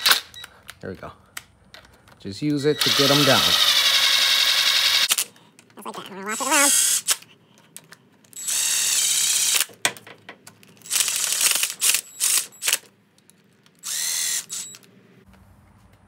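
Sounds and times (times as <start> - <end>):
power driver running bolts: 2.5 - 5.2.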